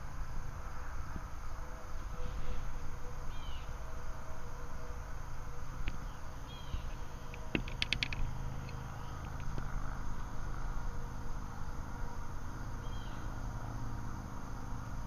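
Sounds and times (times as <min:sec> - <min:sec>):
sharp clicks: 0:07.3 - 0:09.6.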